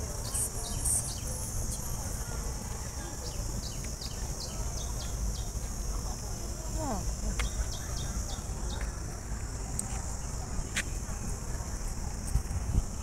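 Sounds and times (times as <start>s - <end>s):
small birds chirping: 0.0s - 2.5s, 3.1s - 11.0s
high steady hiss: 0.0s - 13.0s.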